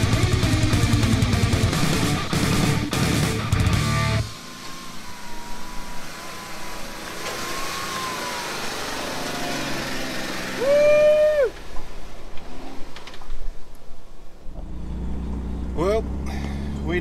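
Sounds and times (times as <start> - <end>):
car engine running: 0.0 - 11.2, 14.4 - 17.0
wind and tyre noise: 4.3 - 17.0.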